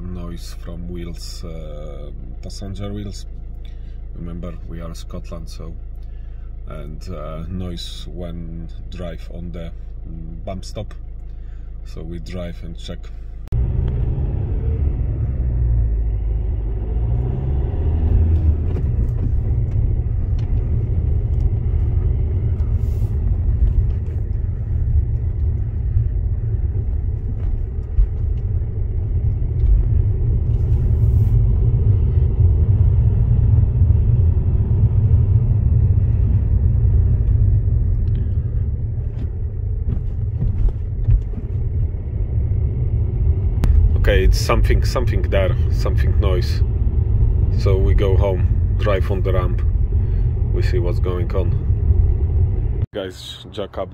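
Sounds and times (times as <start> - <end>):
road and engine rumble in cabin: 0.0 - 53.9
suspension knocks over bumps: 18.0 - 30.2, 38.9 - 42.0.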